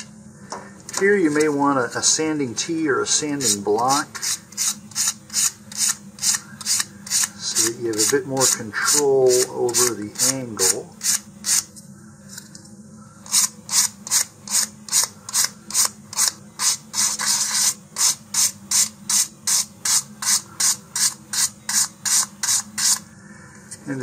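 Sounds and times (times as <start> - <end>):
sandpaper rubbing on wood: 16.6 - 18.9.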